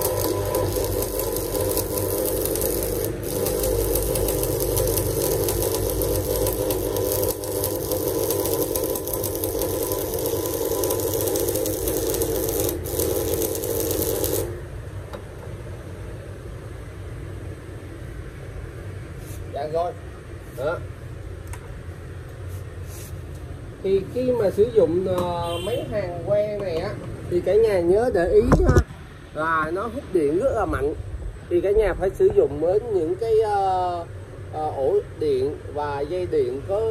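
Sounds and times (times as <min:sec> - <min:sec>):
welding arc crackling sizzle: 0:00.0 - 0:14.7.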